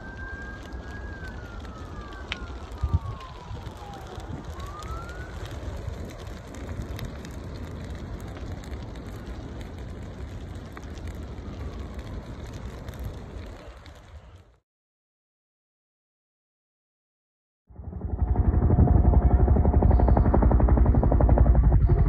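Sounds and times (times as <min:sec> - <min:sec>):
siren wailing: 0:00.0 - 0:06.4, 0:17.7 - 0:22.0
fire crackling: 0:00.0 - 0:14.6.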